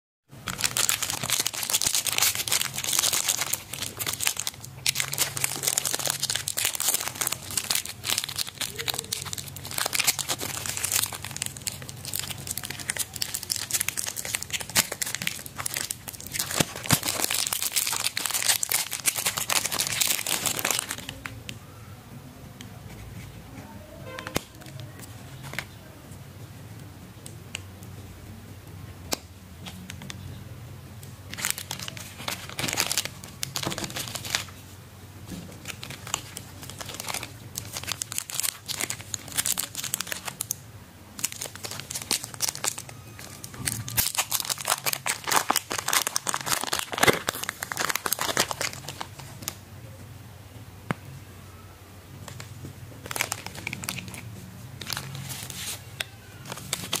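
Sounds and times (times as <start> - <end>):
plastic wrappers crinkling: 0.4 - 21.6, 24.0 - 25.8, 31.2 - 34.8, 35.5 - 49.6, 52.2 - 57.0.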